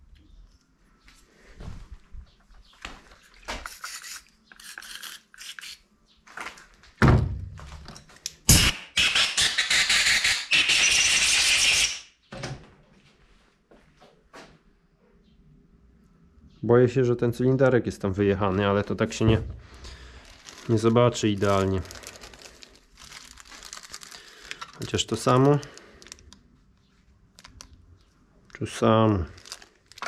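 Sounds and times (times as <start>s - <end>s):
metal parts clicking and knocking: 3.6s - 5.8s.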